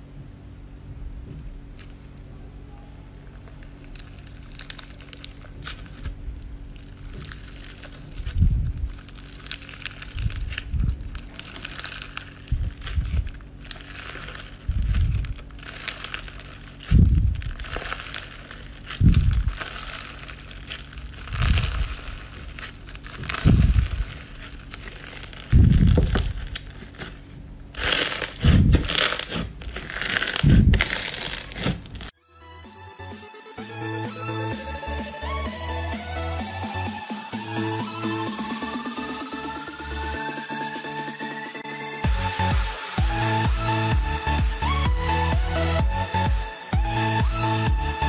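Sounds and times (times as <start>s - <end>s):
crunchy slime crackling: 1.2s - 2.3s, 3.0s - 32.2s
low squishy thuds: 5.2s - 27.0s, 27.8s - 32.1s.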